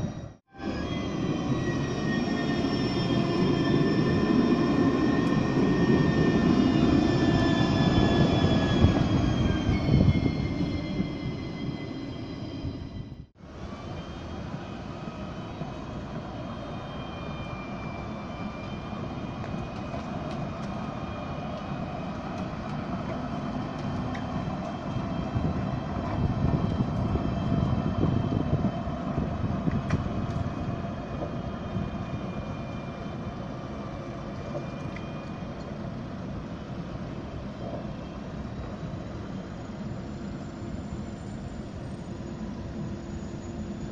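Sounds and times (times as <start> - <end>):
street noise: 0.0 - 43.9
tram rolling past on tracks: 0.0 - 43.9.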